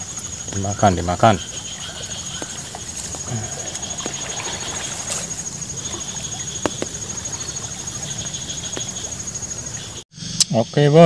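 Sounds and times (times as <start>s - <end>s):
high-pitched insect trill: 0.0s - 10.9s
rushing river: 1.4s - 10.0s.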